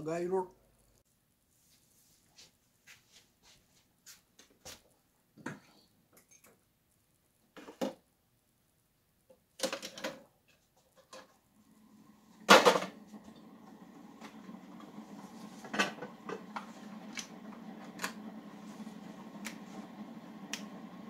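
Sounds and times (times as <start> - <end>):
loud clunk: 12.5 - 13.0.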